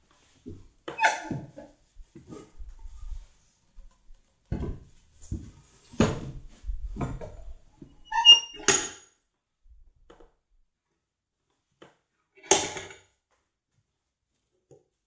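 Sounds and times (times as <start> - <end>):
brief squeak: 8.0 - 8.7.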